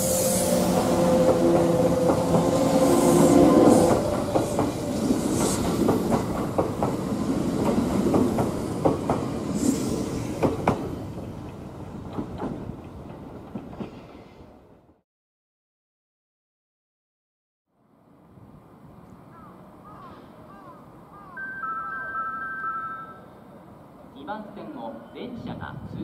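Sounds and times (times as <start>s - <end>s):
train hisses: 0.0s - 11.1s
wheels clacking over rail joints: 3.2s - 9.6s, 10.4s - 14.2s.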